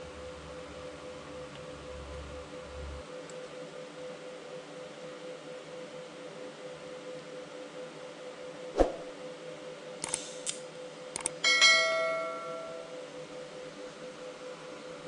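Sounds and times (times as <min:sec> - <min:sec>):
bell ding: 0:11.4 - 0:13.0.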